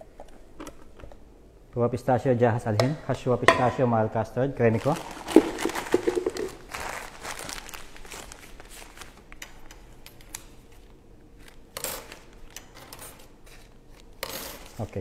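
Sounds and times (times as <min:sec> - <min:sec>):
plastic bag crinkling: 0:04.7 - 0:09.4.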